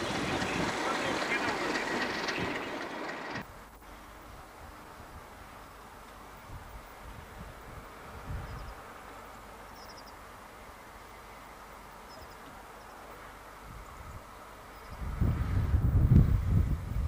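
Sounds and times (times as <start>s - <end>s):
low wind rumble on microphone: 6.4s - 8.9s, 13.6s - 17.0s.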